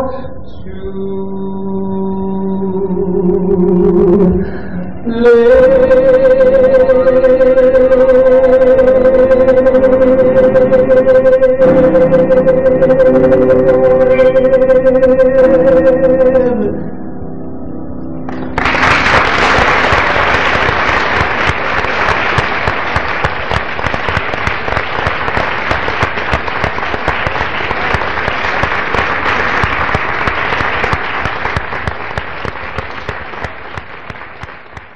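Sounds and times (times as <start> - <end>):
audience applauding: 18.3 - 34.9.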